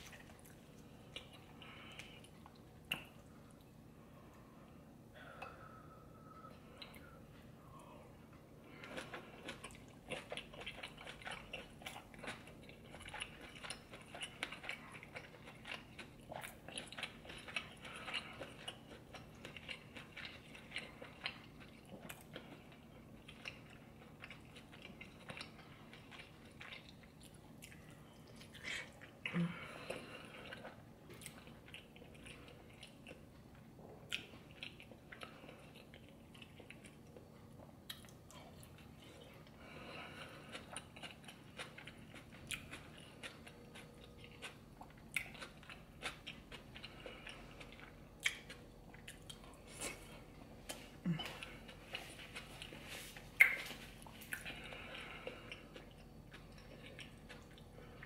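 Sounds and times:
wet chewing mouth sounds: 8.7 - 58.0.

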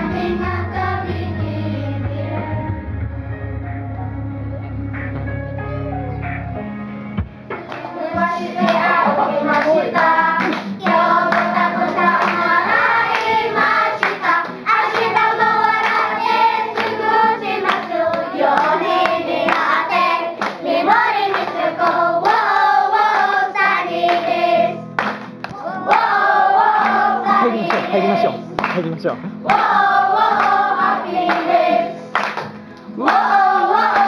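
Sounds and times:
hand claps: 7.5 - 24.3, 24.9 - 34.0
children singing in chorus: 7.8 - 24.8, 25.6 - 28.4, 29.4 - 32.2, 33.0 - 34.0.

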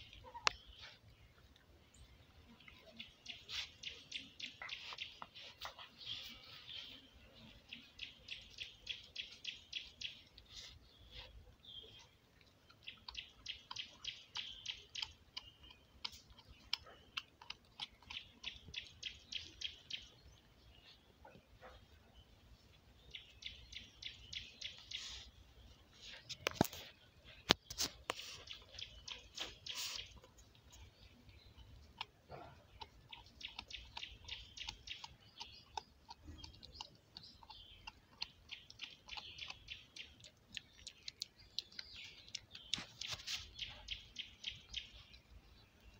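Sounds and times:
puppy crunching chews: 7.7 - 20.2, 25.9 - 45.9.

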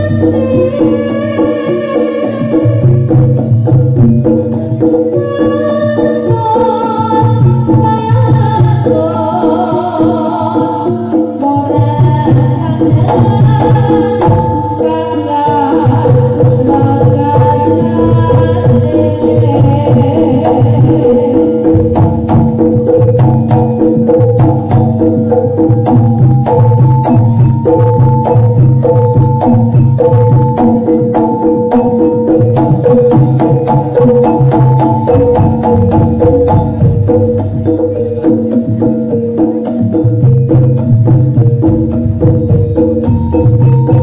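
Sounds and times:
bronze percussion melody: 0.0 - 44.0
hand drum fast patterns: 0.0 - 44.0.

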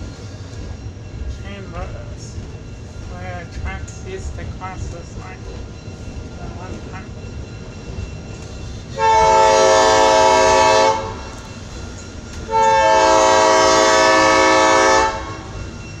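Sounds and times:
train running rumble: 0.0 - 16.0
locomotive air horn blasts: 9.0 - 11.2, 12.5 - 15.5.

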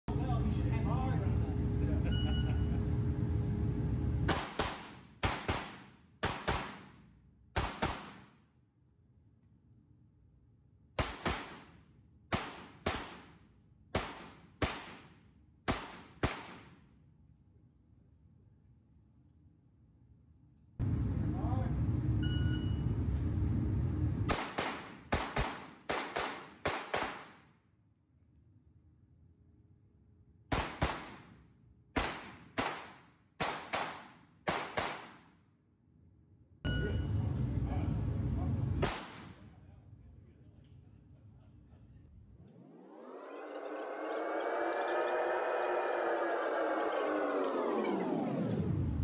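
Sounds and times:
pistol shots with ringing echo: 4.3 - 7.0, 38.8 - 39.4
pistol shots indoors: 4.3 - 8.5, 10.9 - 16.8, 38.8 - 39.5.

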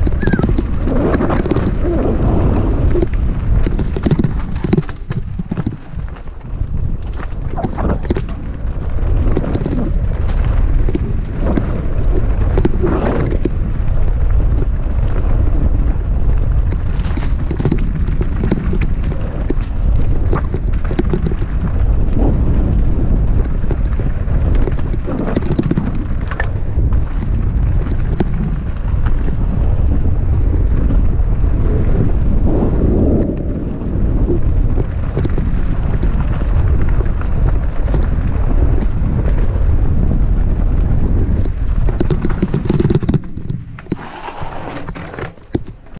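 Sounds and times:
clicks and rattles: 0.0 - 1.8, 2.9 - 8.6, 16.6 - 21.7, 23.5 - 28.6, 41.3 - 45.9
wind rumble on microphone: 0.0 - 45.9.

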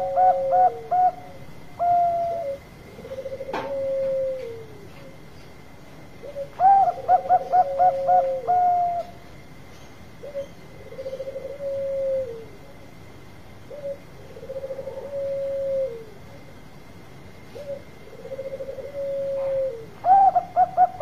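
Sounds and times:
dove cooing: 0.0 - 5.3, 6.1 - 9.2, 10.2 - 12.8, 13.6 - 16.4, 17.5 - 21.0.

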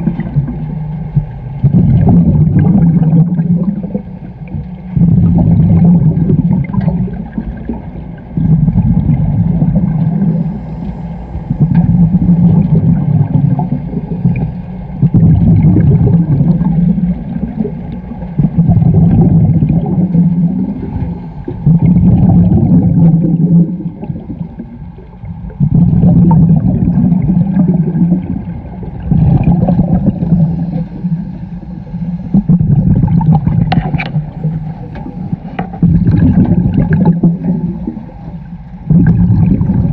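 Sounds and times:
rush of exhaled bubbles: 0.0 - 0.8, 1.6 - 39.9
diver breathing through regulator: 9.6 - 12.9, 29.0 - 33.0.

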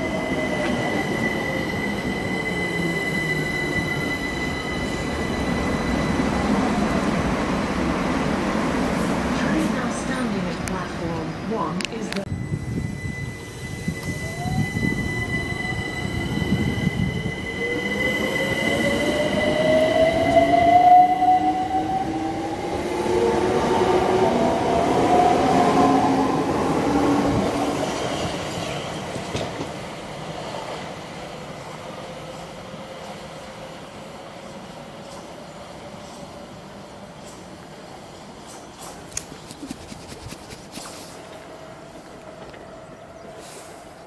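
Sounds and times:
thin steady high tone: 12.2 - 19.6.

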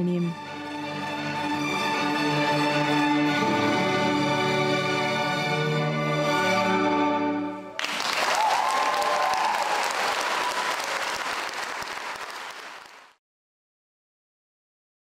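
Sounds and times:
string orchestra chord: 0.0 - 7.7
audience applause: 7.8 - 13.2.

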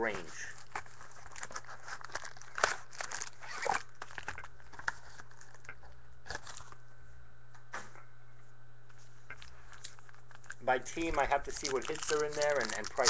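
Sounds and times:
faint low hum: 0.0 - 13.0
plastic wrapping crinkling and tearing: 0.6 - 6.8, 9.3 - 13.0.

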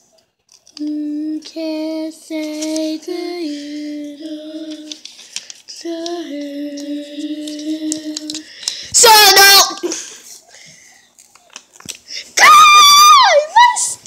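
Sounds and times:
child singing wordless tune: 0.8 - 5.0, 5.7 - 9.8.

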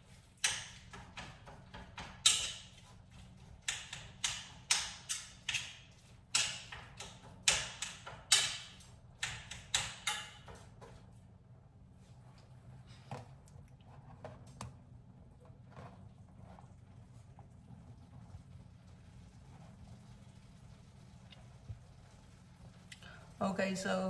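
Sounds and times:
spoon scraping meat in a pan: 0.0 - 11.0.

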